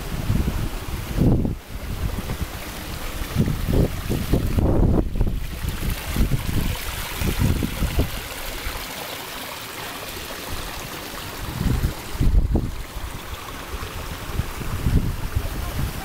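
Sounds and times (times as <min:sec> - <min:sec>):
wind rumble on microphone: 0:00.0 - 0:08.8, 0:10.5 - 0:16.0
water trickling over stones: 0:01.1 - 0:16.0.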